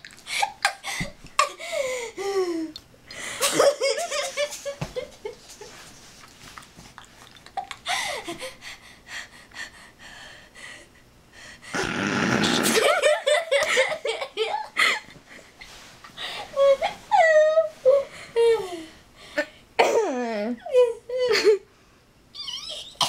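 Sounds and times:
girl laughing: 0:03.4 - 0:05.8, 0:12.6 - 0:15.2, 0:20.6 - 0:21.7.

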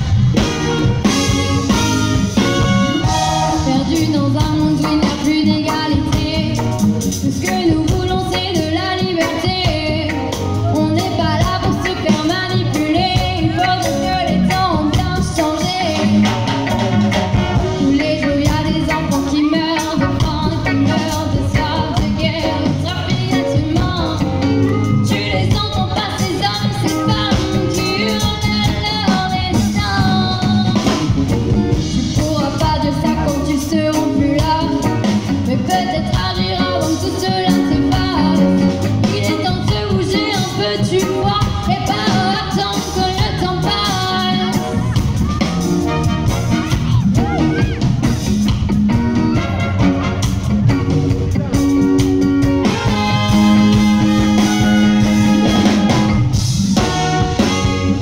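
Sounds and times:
horn section: 0:00.0 - 0:04.5, 0:43.8 - 0:48.3, 0:48.9 - 0:51.1, 0:52.4 - 0:58.0
drums: 0:00.0 - 0:58.0
electric guitars: 0:00.0 - 0:58.0
keyboards: 0:00.0 - 0:58.0
woman singing: 0:03.1 - 0:16.5, 0:17.6 - 0:31.2, 0:31.9 - 0:45.5.

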